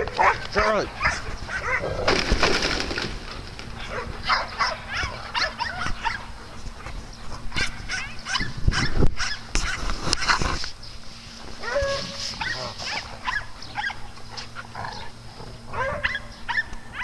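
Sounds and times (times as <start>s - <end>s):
dogs barking yipping and whining: 0.0s - 2.1s, 3.3s - 10.6s, 11.5s - 17.0s.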